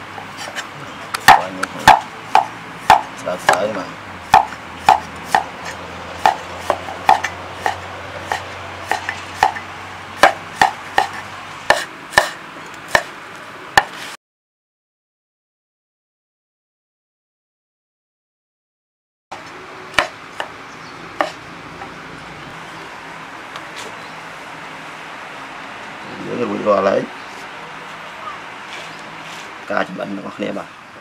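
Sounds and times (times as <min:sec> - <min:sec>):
cleaver chopping on a board: 0:01.2 - 0:13.1, 0:13.8 - 0:14.0, 0:19.9 - 0:20.6, 0:21.2 - 0:21.4.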